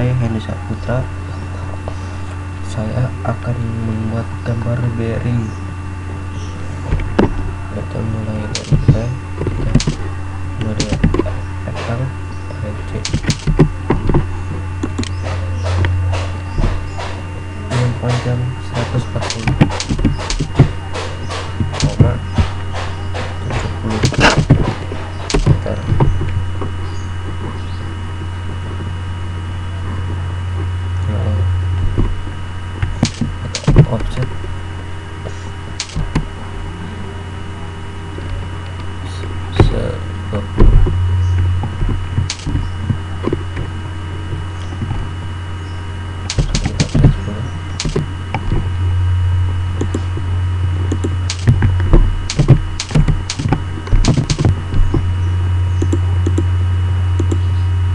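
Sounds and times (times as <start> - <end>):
low hum: 0.0 - 57.9
keyboard keystrokes: 9.7 - 10.0, 10.7 - 11.3, 13.0 - 13.7, 17.8 - 24.7, 35.8 - 36.2, 46.3 - 47.2, 47.8 - 48.0, 52.3 - 54.5, 57.2 - 57.4
mouse clicks: 55.8 - 56.5, 57.2 - 57.5.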